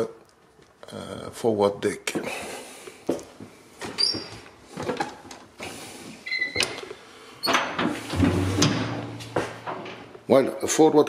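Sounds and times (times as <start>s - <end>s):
metal door squeak: 4.0s - 4.3s, 6.2s - 6.8s, 7.4s - 9.2s
metal door creaking: 6.3s - 10.2s.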